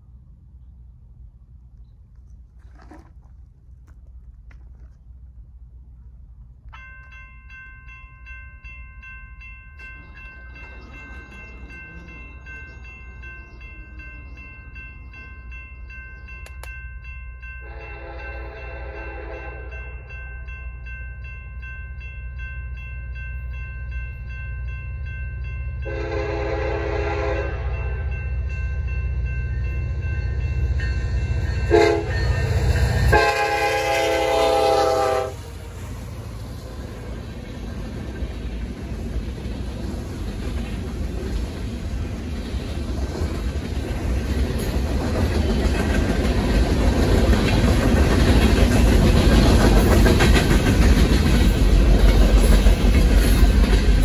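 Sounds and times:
train rumble: 0:00.0 - 0:54.0
crossing warning bells ringing: 0:06.6 - 0:54.0
train horn: 0:17.6 - 0:19.9, 0:25.8 - 0:28.2, 0:31.6 - 0:36.0.

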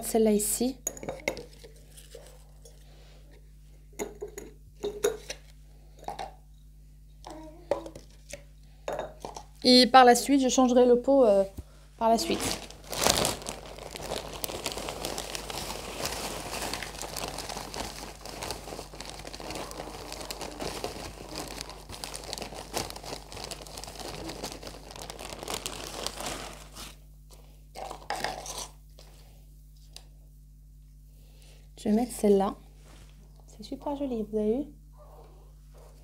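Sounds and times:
plastic bag crinkling: 0:12.0 - 0:27.0.

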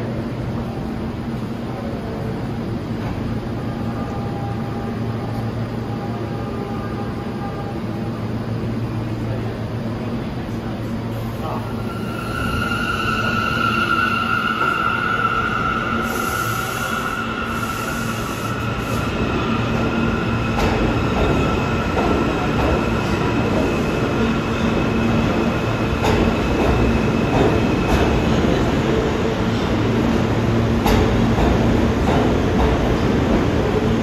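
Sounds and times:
train rumble: 0:00.0 - 0:34.0
train wheels squealing: 0:11.4 - 0:28.6
rail joint clicks: 0:30.8 - 0:33.0.

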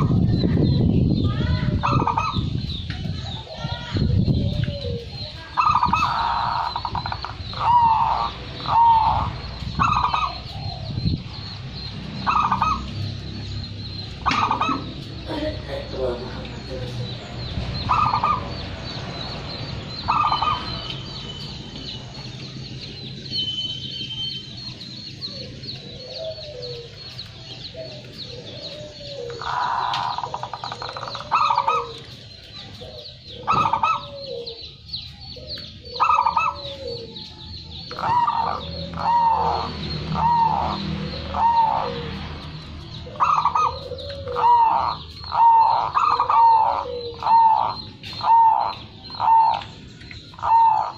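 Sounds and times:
dove cooing: 0:01.7 - 0:19.0, 0:19.9 - 0:21.2, 0:25.1 - 0:50.9.

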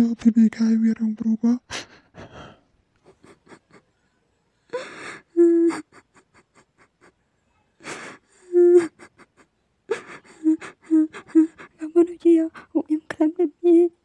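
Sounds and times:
person sobbing: 0:01.7 - 0:07.2, 0:07.8 - 0:12.8.

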